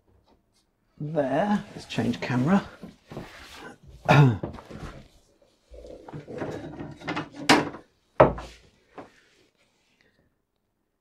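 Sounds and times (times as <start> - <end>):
cardboard rustling and scraping: 1.6 - 3.8.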